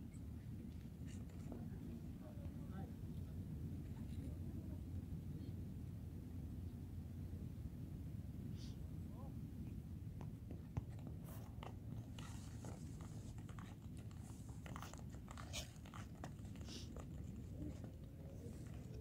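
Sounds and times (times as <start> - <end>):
crunchy clicks and crackles: 10.9 - 19.0.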